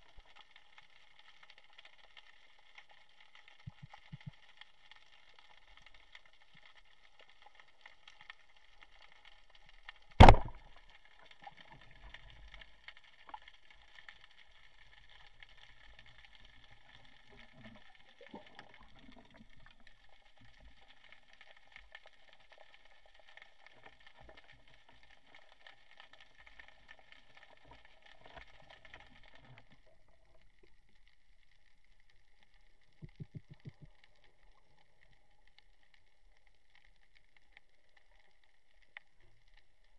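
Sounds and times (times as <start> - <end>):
faint crackle of the sea: 0.0 - 39.9
speargun firing underwater: 10.2 - 10.7.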